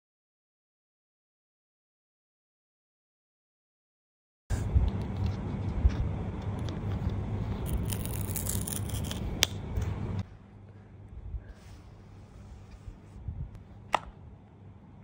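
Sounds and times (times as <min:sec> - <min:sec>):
low steady hum: 0:04.5 - 0:15.0
card scraping and rustling: 0:06.4 - 0:10.0
paper tearing rip: 0:07.6 - 0:09.5.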